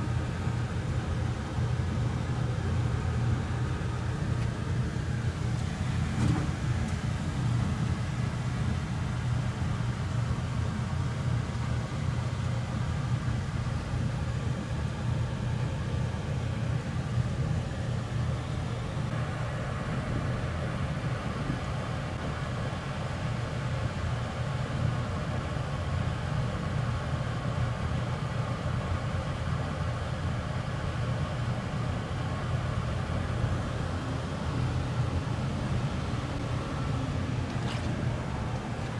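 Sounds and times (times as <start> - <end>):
air conditioner unit humming: 0.0 - 38.9.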